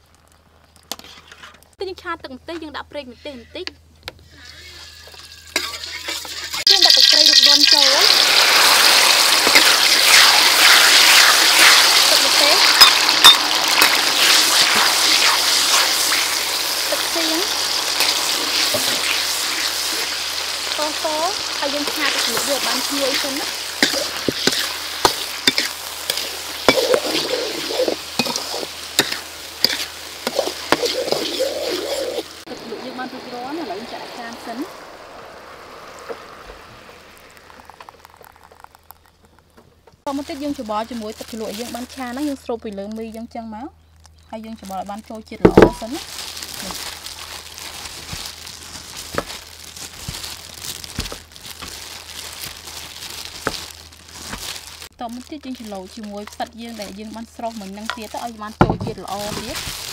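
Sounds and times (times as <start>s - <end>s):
ladle scraping in a wok: 0.9s - 1.6s, 4.2s - 34.6s
sauce sizzling: 4.2s - 42.5s, 45.6s - 59.9s
plastic gloves and noodles rustling: 6.5s - 34.7s, 40.1s - 43.4s, 44.4s - 59.9s.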